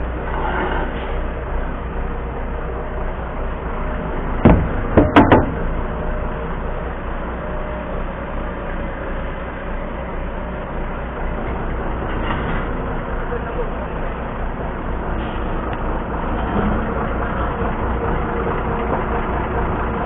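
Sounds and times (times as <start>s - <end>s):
diesel engine humming: 0.0s - 20.0s
sharp knocks: 4.4s - 5.6s.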